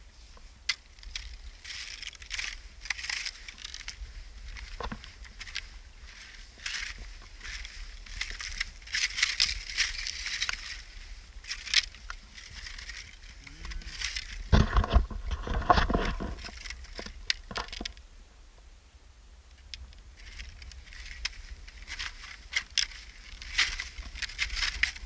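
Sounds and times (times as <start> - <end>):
footsteps crunching on lava rock: 0.0 - 17.9, 20.2 - 25.0
small stones clicking: 0.7 - 10.8, 11.5 - 14.6.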